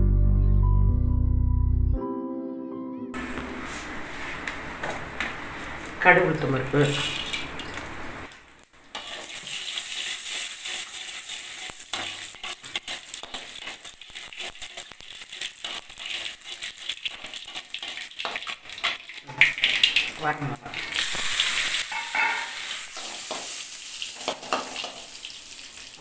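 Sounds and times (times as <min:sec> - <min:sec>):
seeds crackling in hot oil: 0:05.7 - 0:26.0
metal ladle stirring: 0:06.9 - 0:07.9, 0:20.8 - 0:23.5.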